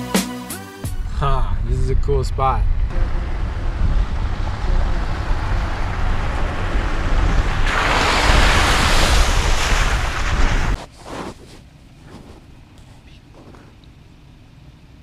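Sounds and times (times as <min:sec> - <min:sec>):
low rumble: 0:00.9 - 0:10.9
wind buffeting microphone: 0:01.0 - 0:10.8.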